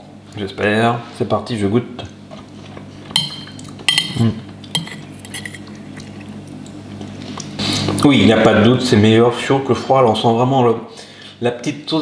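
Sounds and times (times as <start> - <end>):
fork scraping ceramic plate: 4.7 - 5.7.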